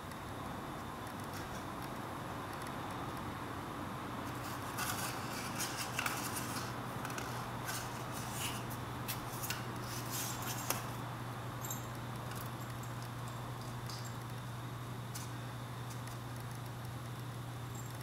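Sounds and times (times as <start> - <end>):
steady low hum: 0.0 - 18.0
kittens' claws scratching: 4.3 - 11.0.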